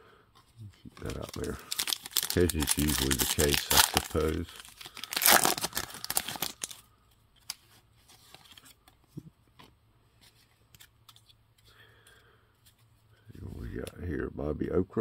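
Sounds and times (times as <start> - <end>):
foil wrapper crinkling: 1.0 - 6.8.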